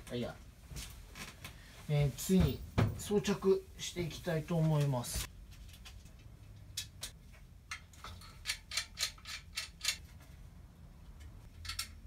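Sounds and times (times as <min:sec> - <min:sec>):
sharp metallic clicks: 0:06.7 - 0:10.1, 0:11.2 - 0:12.0.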